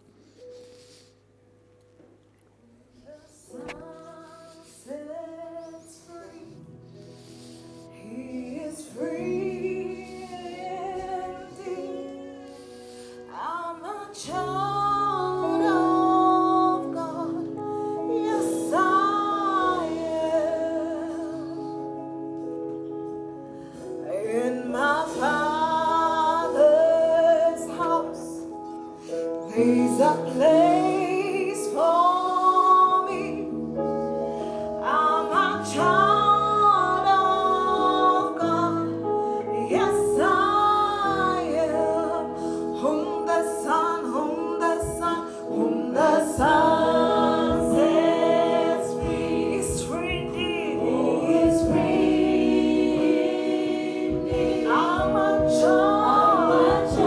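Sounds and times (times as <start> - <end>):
women singing gospel song: 7.9 - 22.4, 24.0 - 28.5, 29.4 - 57.0
held chords: 14.3 - 57.0.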